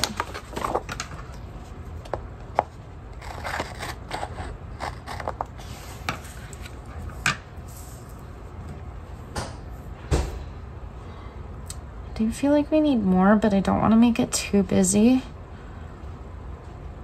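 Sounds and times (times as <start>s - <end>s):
paper rustling: 0.0s - 2.1s.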